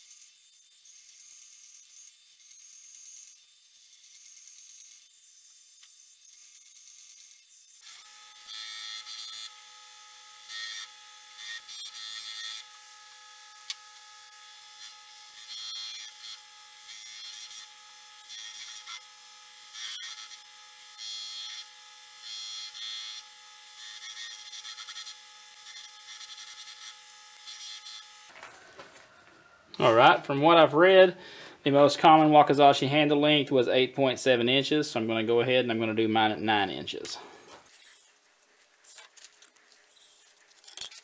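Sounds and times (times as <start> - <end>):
power tool motor hum: 0.0 - 28.3.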